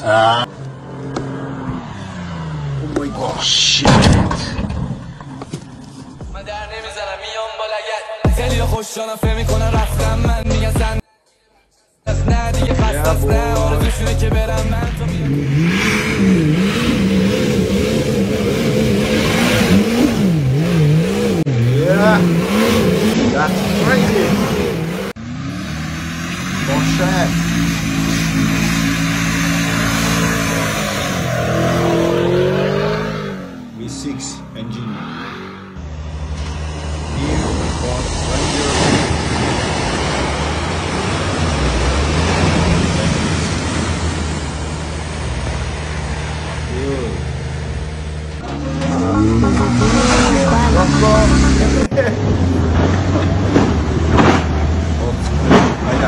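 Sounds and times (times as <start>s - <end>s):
car engine revving hard: 13.5s - 56.0s
water rushing and splashing: 36.9s - 46.7s.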